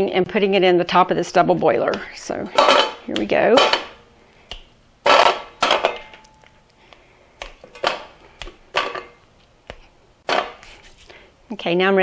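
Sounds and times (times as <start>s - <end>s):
pieces clattering into metal pan: 2.5s - 4.0s, 5.1s - 6.4s, 7.7s - 8.1s, 8.7s - 9.2s, 10.3s - 10.6s
candy coating snapping: 6.2s - 8.8s, 9.4s - 10.8s.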